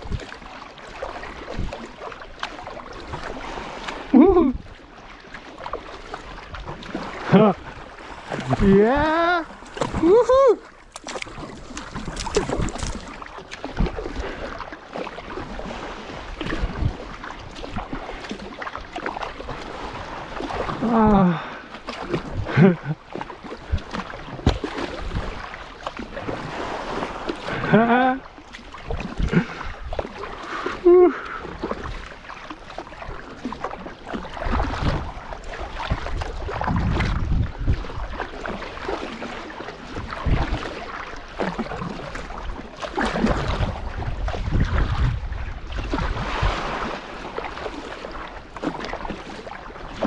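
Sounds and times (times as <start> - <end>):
water splashing around kayak: 0.0 - 50.0
wind buffeting microphone: 35.8 - 38.2, 43.1 - 47.1.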